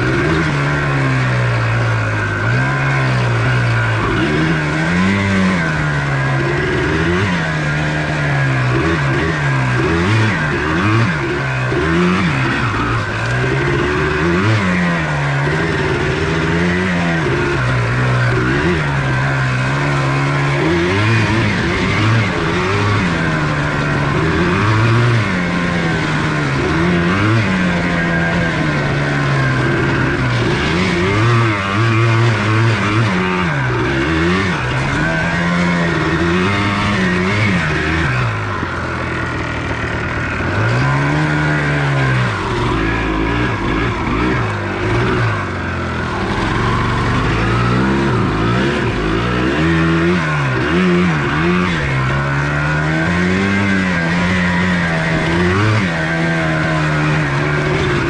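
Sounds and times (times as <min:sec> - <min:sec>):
two-stroke engine revving: 0:00.0 - 0:58.0.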